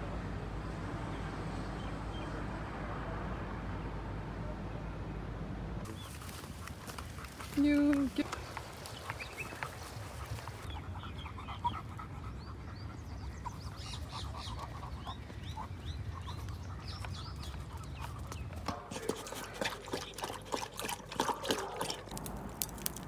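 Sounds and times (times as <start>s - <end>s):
dog lapping and chewing: 13.1s - 22.3s.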